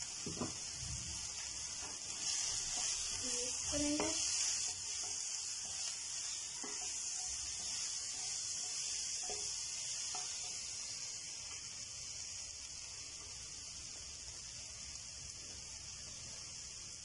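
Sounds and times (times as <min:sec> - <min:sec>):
food sizzling in frying pan: 0:00.0 - 0:17.0
spatula knocking on pan: 0:03.8 - 0:05.9, 0:06.5 - 0:10.6.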